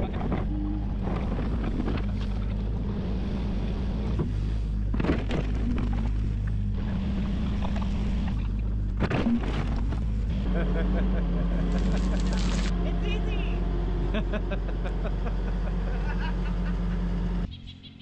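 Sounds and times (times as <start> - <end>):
excavator diesel engine: 0.0 - 18.0
bucket digging soil: 11.7 - 12.7.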